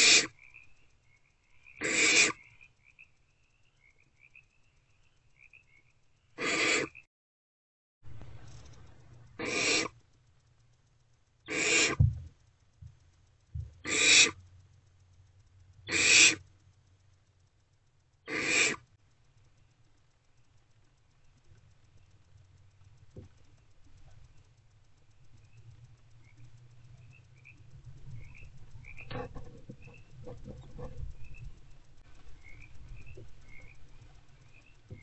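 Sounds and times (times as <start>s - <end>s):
owlets rasping hiss calls: 0.0s - 0.4s, 1.8s - 2.4s, 6.4s - 7.0s, 9.4s - 10.0s, 11.5s - 12.0s, 13.8s - 14.4s, 15.8s - 16.4s, 18.3s - 18.9s
faint low hum: 8.0s - 35.0s.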